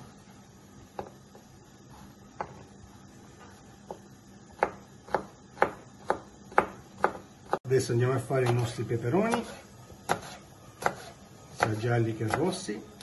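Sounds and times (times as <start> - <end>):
knife chopping on plastic board: 2.4 - 2.6, 3.8 - 7.6, 8.4 - 12.6.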